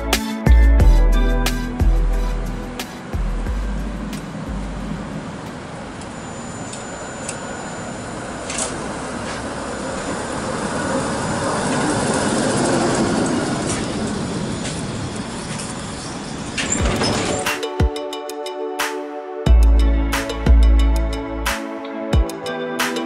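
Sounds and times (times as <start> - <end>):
tram rumbling on rails: 0.0 - 18.0
thin high whine: 5.2 - 8.7.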